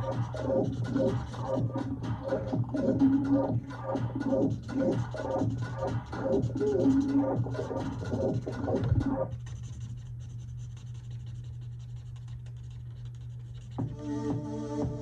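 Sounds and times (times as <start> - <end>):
background music: 0.0 - 9.2, 13.8 - 15.0
marker scratching on paper: 6.1 - 13.9.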